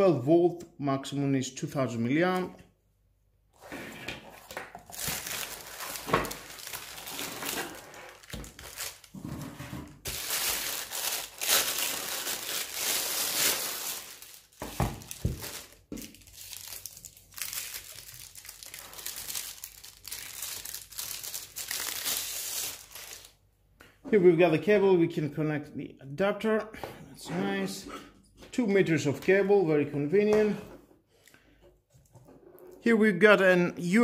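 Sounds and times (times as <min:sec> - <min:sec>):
plastic wrap crinkling: 0:04.3 - 0:09.2, 0:10.0 - 0:23.4.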